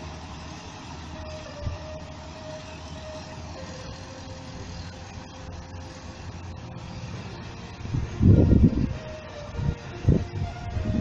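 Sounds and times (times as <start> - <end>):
combine harvester engine drone: 0.0 - 11.0
high whine: 0.0 - 11.0.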